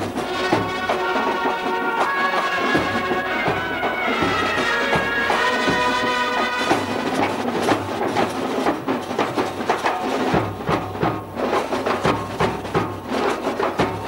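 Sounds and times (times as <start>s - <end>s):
held melody notes: 0.0s - 7.7s
quick uneven drum beats: 0.0s - 14.0s.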